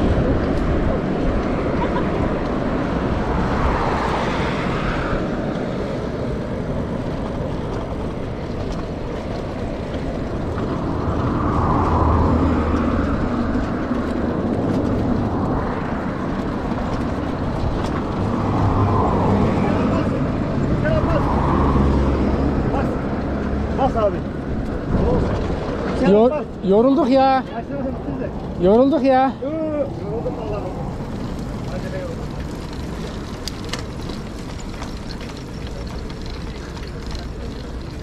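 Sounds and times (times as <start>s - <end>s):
wind rushing: 0.0s - 7.1s, 10.4s - 25.9s
bicycle road noise: 0.0s - 38.0s.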